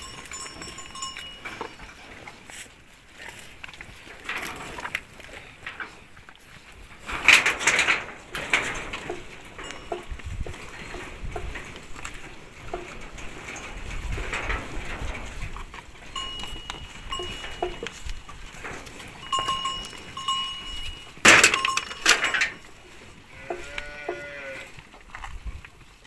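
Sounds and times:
cowbell clanking: 0.0 - 2.4, 8.4 - 13.8, 15.6 - 24.6
cow calling: 23.2 - 24.8.

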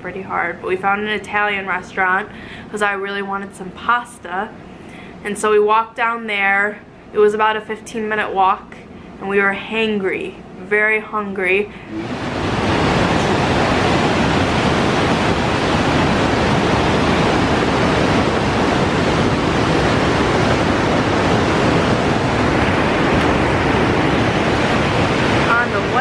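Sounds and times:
whitewater rapids rushing: 11.9 - 26.0.

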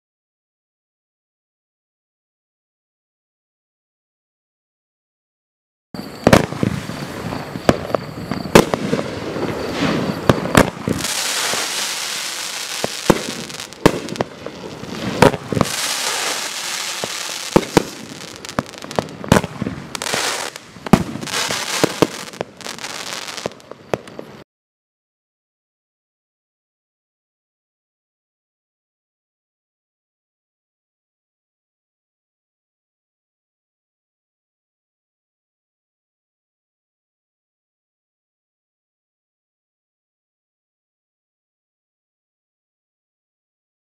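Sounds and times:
fireworks bangs: 6.0 - 24.4
fireworks hiss: 6.0 - 24.4.

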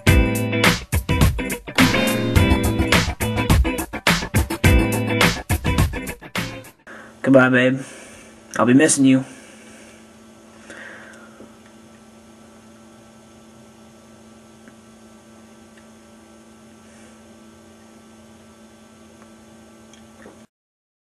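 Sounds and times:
electrical hum: 6.8 - 20.5.

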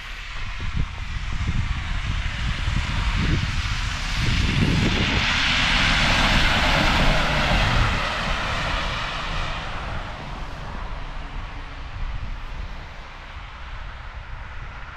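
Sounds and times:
low rumble: 0.0 - 14.9
vehicle passing: 4.6 - 14.6.

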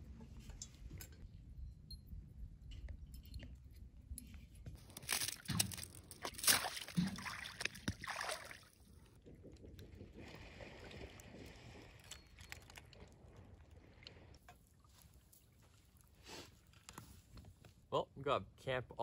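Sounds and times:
dog splashing through icy water: 4.8 - 8.9
water lapping at icy shoreline: 4.8 - 17.4.

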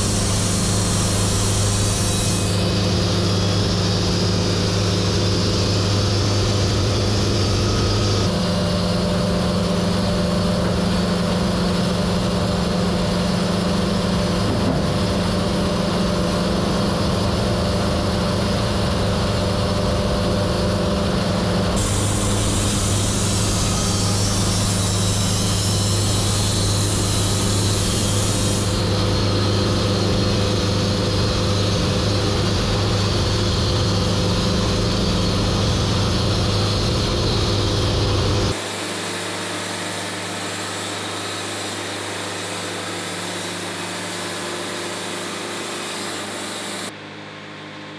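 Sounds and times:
hiss: 0.0 - 8.2, 21.8 - 43.1
band sawmill sawing log: 0.0 - 47.0.

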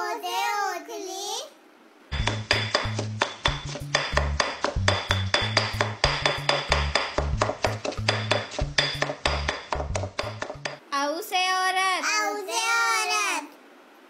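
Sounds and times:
background music with bass: 2.1 - 10.8
pestle pounding in stone mortar: 2.1 - 10.8.

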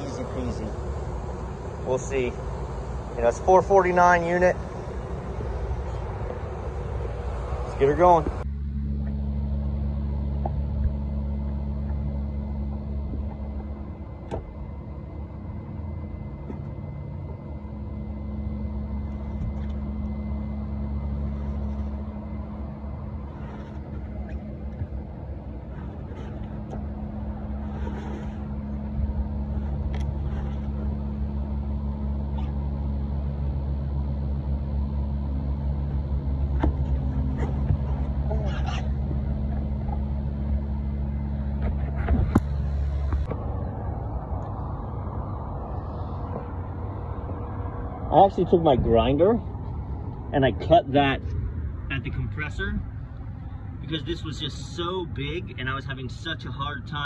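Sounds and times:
low machine hum: 0.0 - 57.0
faint rustles: 20.8 - 31.4.

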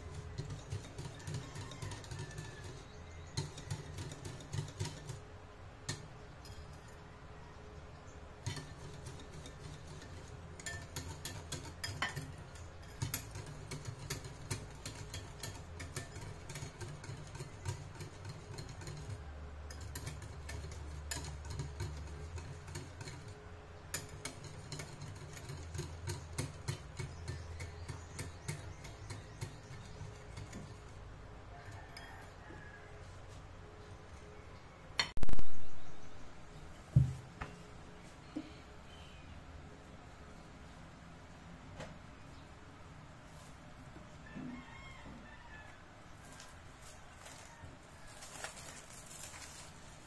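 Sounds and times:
whisk clicking against glass bowl: 0.0 - 5.2, 8.4 - 30.8.

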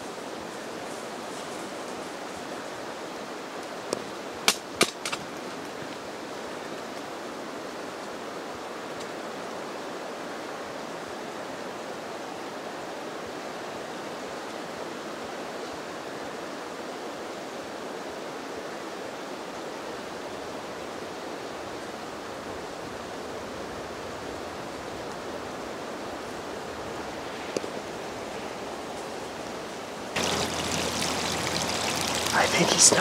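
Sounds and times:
running water rushing: 24.5 - 33.0.

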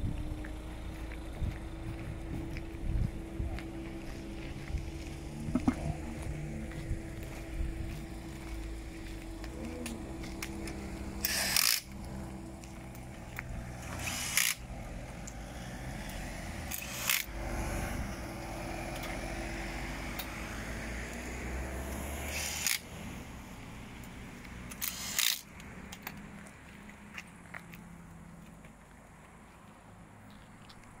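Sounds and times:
low steady hum: 0.0 - 22.2
power tool bursts on wheel nuts: 11.2 - 11.9, 13.9 - 14.6, 16.7 - 17.3, 22.2 - 22.9, 24.7 - 25.5.

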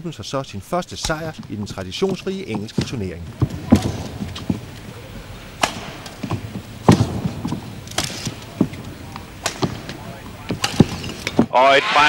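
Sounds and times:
rackets striking shuttlecock: 2.5 - 11.5.

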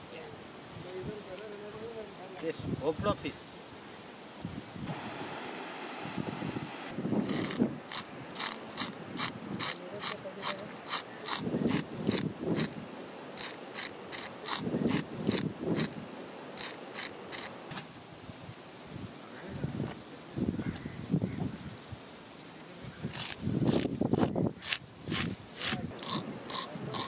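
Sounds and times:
fish scaler scraping scales: 7.2 - 12.8, 13.4 - 16.0, 16.6 - 17.6, 23.1 - 27.0.

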